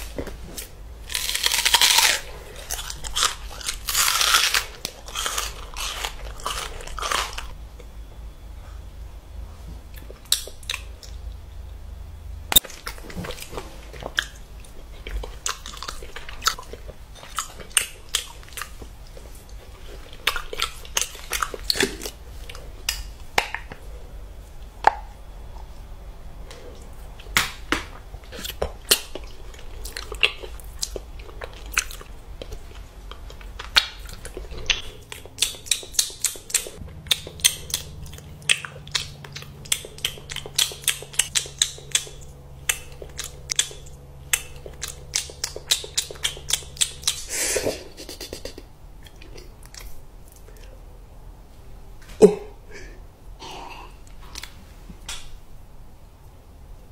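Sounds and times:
background hum: 0:00.0 - 0:56.9
wet chewing and lip smacks: 0:28.2 - 0:47.3, 0:48.0 - 0:50.8.

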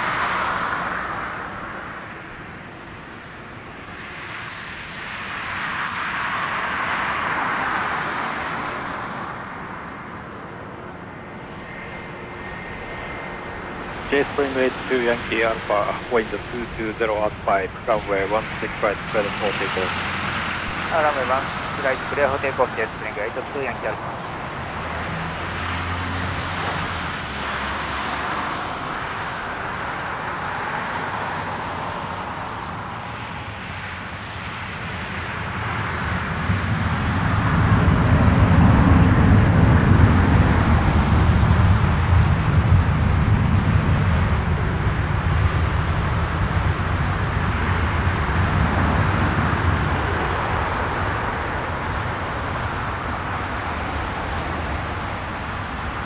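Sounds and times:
jet engines at takeoff: 0:00.0 - 0:56.0.

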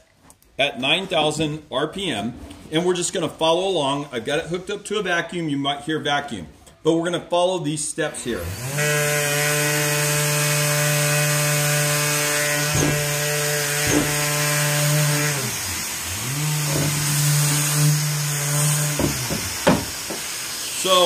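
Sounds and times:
electric sander humming: 0:08.4 - 0:21.0.

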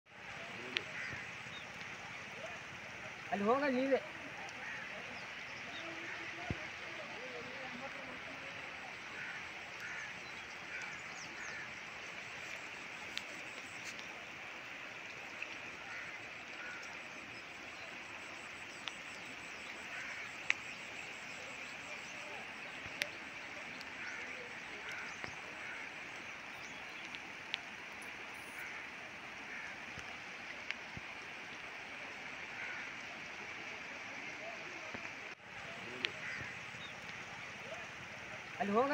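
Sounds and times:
floodwater rushing: 0:00.1 - 0:38.9.

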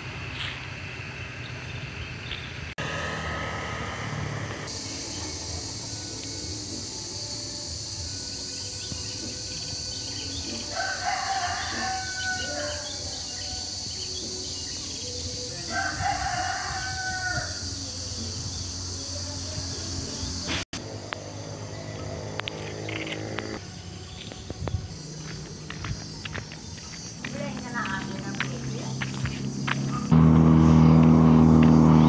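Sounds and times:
steady high hiss: 0:02.6 - 0:12.2
rooster crowing: 0:10.6 - 0:13.6, 0:15.6 - 0:17.8.

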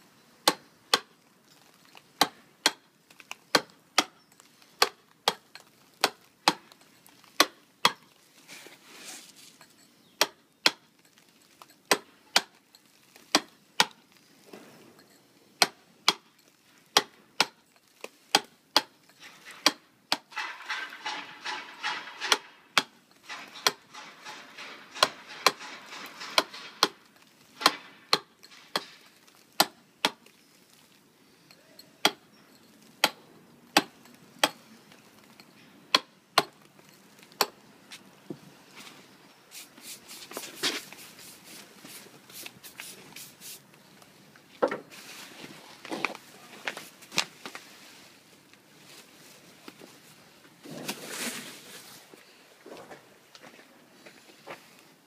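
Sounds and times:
rough scraping noise: 0:08.5 - 0:09.5, 0:19.2 - 0:29.0, 0:50.6 - 0:52.1
mallet striking chisel into stone: 0:32.0 - 0:32.2.

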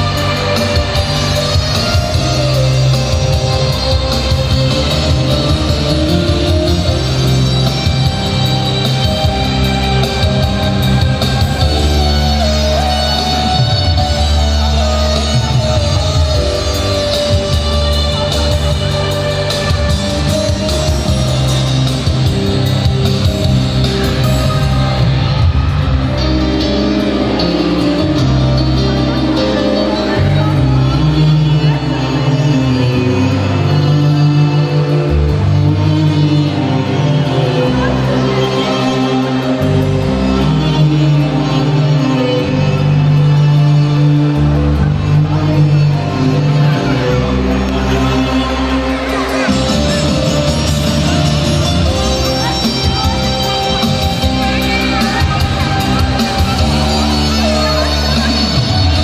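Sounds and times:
music with steady bass line: 0:00.0 - 0:59.0
dance music with bass line: 0:44.2 - 0:59.0.

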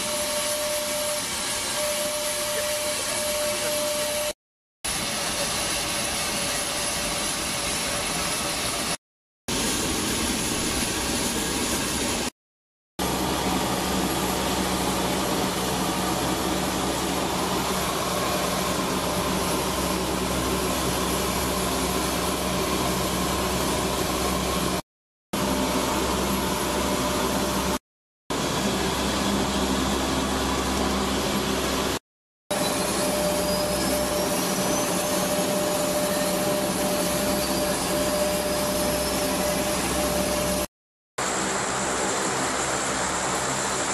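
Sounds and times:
thin steady whine: 0:00.0 - 0:08.9, 0:13.0 - 0:24.8, 0:25.4 - 0:43.9
turboprop engines droning: 0:13.0 - 0:24.8, 0:25.4 - 0:40.6.

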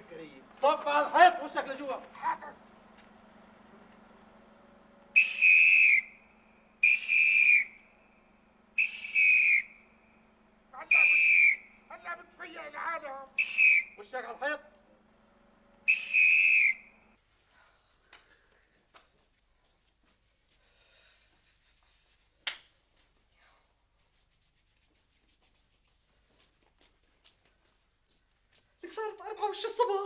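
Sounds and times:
police whistle blasts: 0:05.2 - 0:08.2, 0:08.8 - 0:10.2, 0:10.8 - 0:11.9, 0:13.4 - 0:14.0, 0:15.9 - 0:17.1.

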